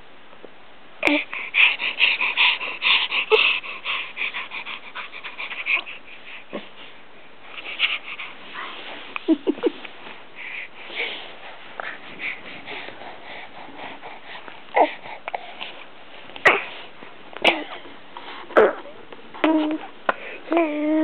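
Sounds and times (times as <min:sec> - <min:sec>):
baby panting and huffing: 0:01.0 - 0:21.0
baby grunting: 0:16.4 - 0:16.8, 0:18.5 - 0:19.9.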